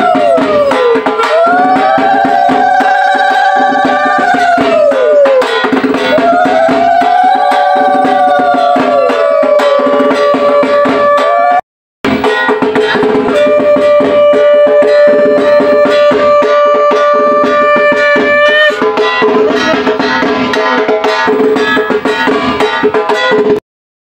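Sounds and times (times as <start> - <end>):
fast steady drumming: 0.0 - 23.6
long held melodic note: 13.3 - 18.8.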